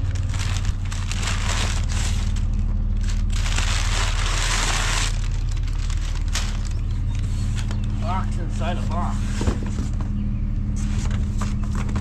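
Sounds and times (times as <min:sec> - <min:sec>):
paper crumpling: 0:00.0 - 0:08.0
steady low hum: 0:00.0 - 0:12.0.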